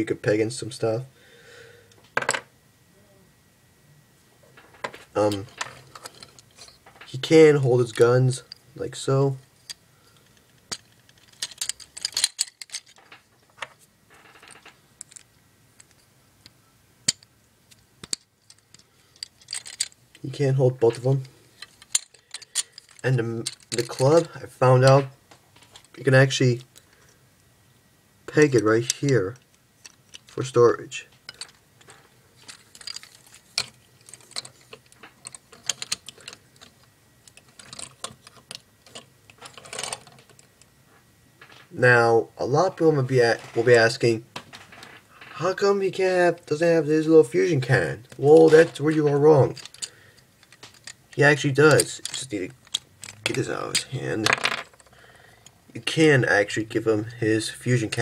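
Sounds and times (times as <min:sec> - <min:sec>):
plastic toy parts clicking: 0:09.7 - 0:13.1, 0:14.5 - 0:20.2, 0:31.3 - 0:40.4, 0:49.5 - 0:54.9.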